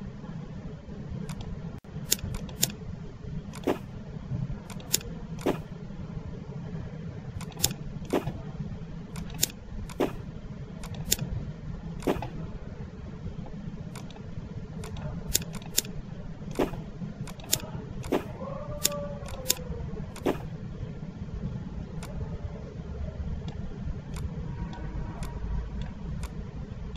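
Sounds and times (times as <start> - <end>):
steady low hum: 0.0 - 26.9
computer mouse clicking: 1.2 - 2.8, 3.5 - 3.9, 4.7 - 5.7, 7.4 - 8.4, 9.1 - 10.2, 10.8 - 11.3, 12.0 - 12.4, 13.9 - 19.6, 20.2 - 20.5, 23.4 - 26.4.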